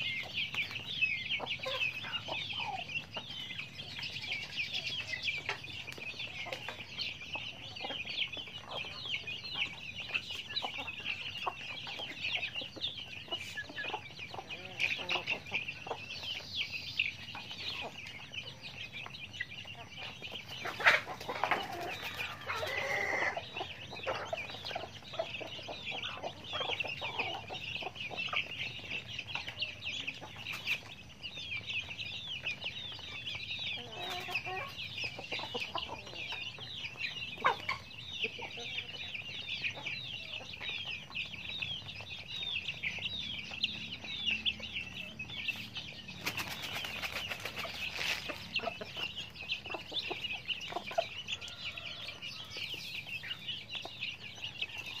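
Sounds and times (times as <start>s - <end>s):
chicks peeping: 0.0s - 55.0s
hens clucking: 0.0s - 55.0s.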